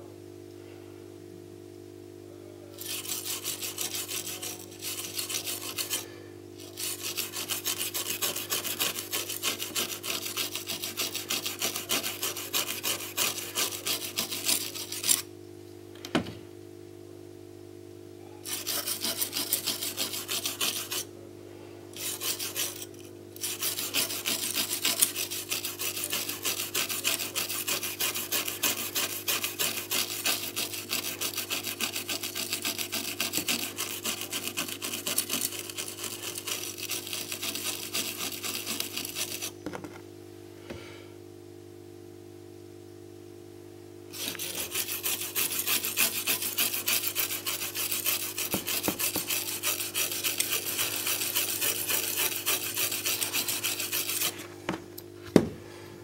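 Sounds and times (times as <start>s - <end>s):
faint steady hum: 0.0s - 56.0s
bristle brush scrubbing circuit board: 2.8s - 15.3s, 18.4s - 21.1s, 22.0s - 39.6s, 44.1s - 54.4s.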